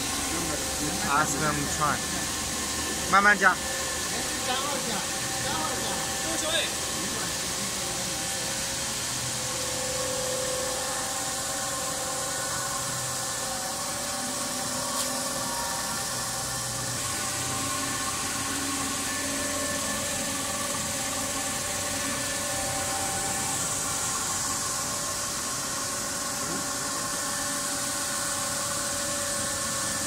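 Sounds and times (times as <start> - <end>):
faint machine hums: 0.0 - 30.0.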